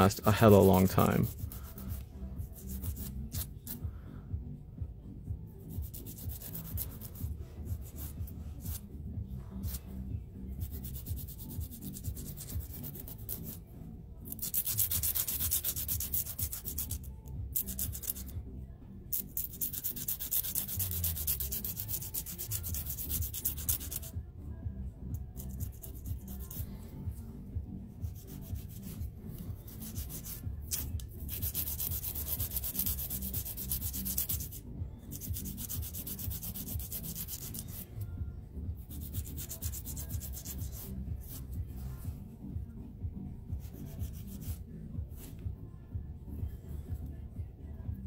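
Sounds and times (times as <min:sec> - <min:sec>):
nail file rasping on fingernail: 0:01.2 - 0:03.8, 0:05.7 - 0:08.8, 0:10.6 - 0:13.6, 0:14.3 - 0:18.3, 0:19.1 - 0:24.2, 0:25.4 - 0:26.6, 0:28.0 - 0:37.9, 0:38.8 - 0:41.9, 0:43.6 - 0:44.6.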